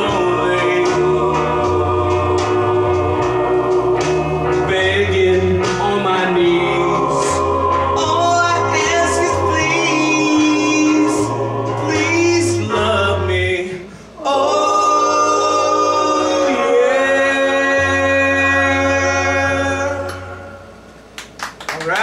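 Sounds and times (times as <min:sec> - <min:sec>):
recorded backing music: 0:00.0 - 0:22.0
man singing into microphone: 0:04.6 - 0:07.4, 0:08.0 - 0:13.9.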